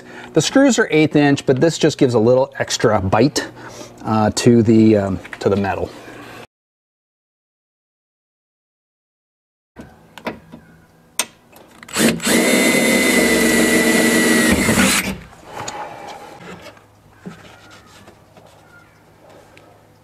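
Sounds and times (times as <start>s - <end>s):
cordless drill boring metal: 11.8s - 15.2s.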